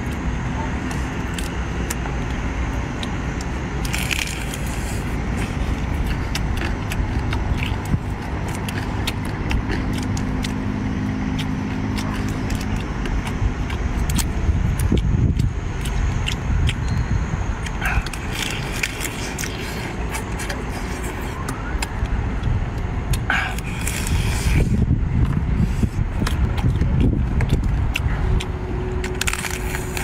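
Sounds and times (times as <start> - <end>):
eating noises: 0.0 - 30.0
steady low rumble: 0.0 - 30.0
crab shell cracking: 26.2 - 30.0.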